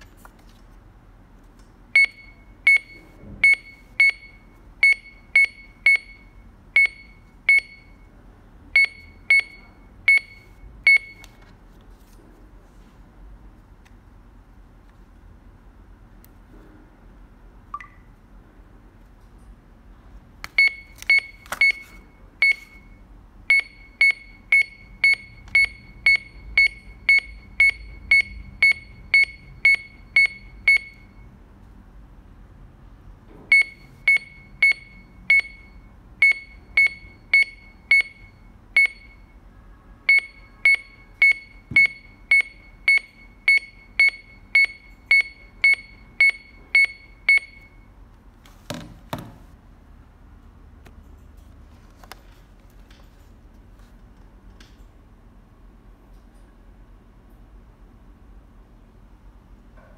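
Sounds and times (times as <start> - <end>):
barcode scanner beeping: 2.0 - 8.0, 8.8 - 11.4, 17.8 - 18.1, 20.6 - 31.2, 33.5 - 39.3, 40.1 - 47.8.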